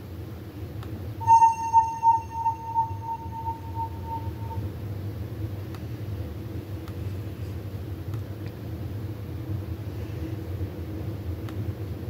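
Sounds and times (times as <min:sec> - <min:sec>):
steady low hum: 0:00.9 - 0:12.0
held synthesizer note: 0:01.2 - 0:04.6.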